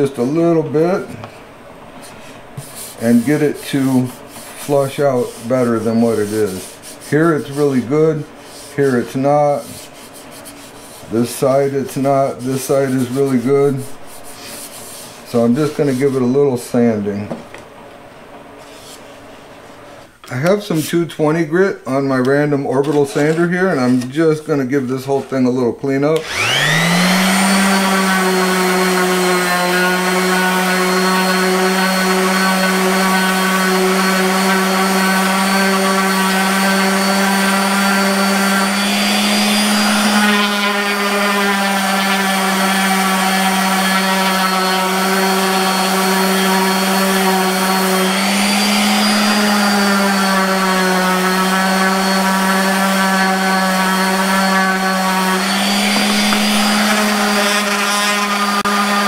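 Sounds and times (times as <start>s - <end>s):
orbital sander running: 26.2s - 59.0s.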